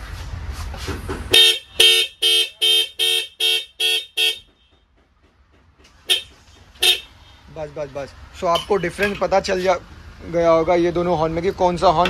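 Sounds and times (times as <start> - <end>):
car horn blasts: 1.3 - 4.9, 6.0 - 7.4.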